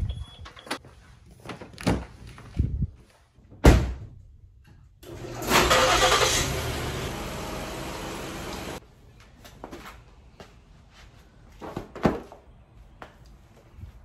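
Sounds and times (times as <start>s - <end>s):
garage door opener rumbling: 5.0s - 8.8s.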